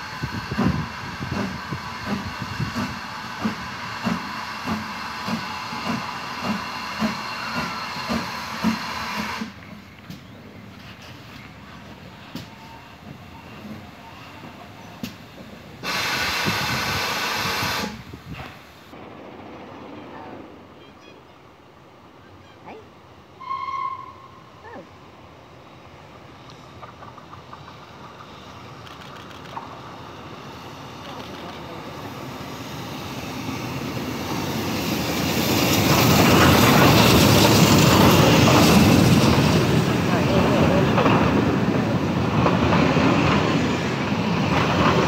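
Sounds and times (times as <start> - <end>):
steam locomotive hissing steam: 0.0 - 19.0, 29.6 - 45.0
low rumble of locomotive moving: 0.0 - 45.0.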